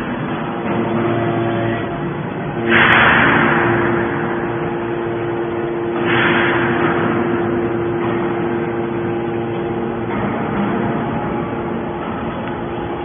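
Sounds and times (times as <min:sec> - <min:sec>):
hydraulic machine hum: 0:00.0 - 0:13.0
loud hydraulic hissing surges: 0:02.6 - 0:11.6.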